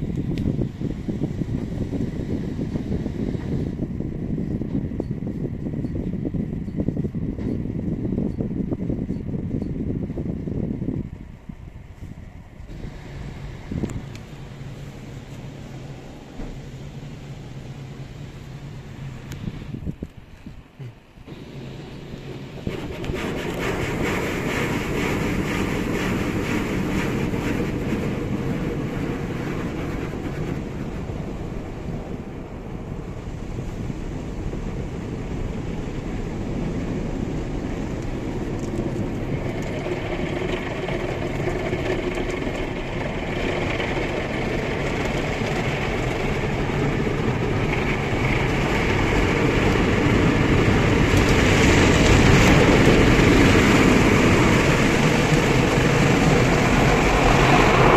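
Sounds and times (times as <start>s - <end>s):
brushes scrubbing windscreen: 21.3s - 31.2s.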